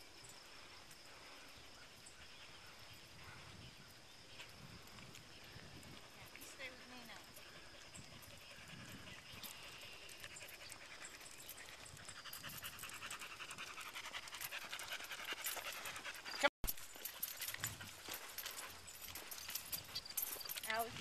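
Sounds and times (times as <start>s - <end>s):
dog panting: 6.0s - 21.0s.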